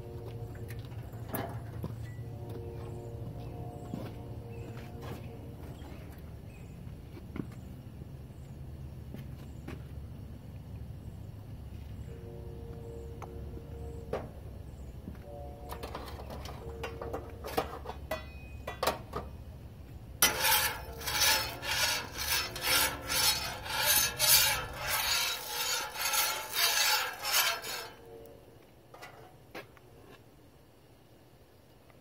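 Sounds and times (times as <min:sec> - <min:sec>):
metal spatula scraping griddle: 0:15.7 - 0:19.3, 0:20.2 - 0:28.3.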